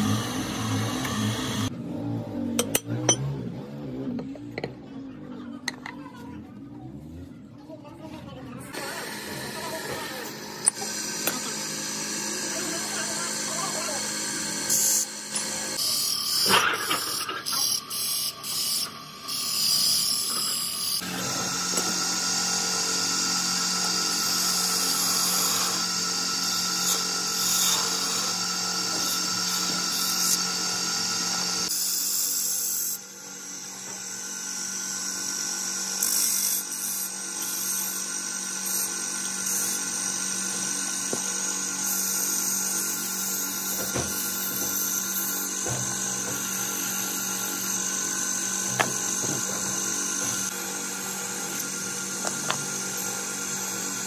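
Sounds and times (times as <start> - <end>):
wood lathe motor humming: 0.0 - 4.7, 8.7 - 54.0
chisel scraping spinning wood: 42.4 - 54.0.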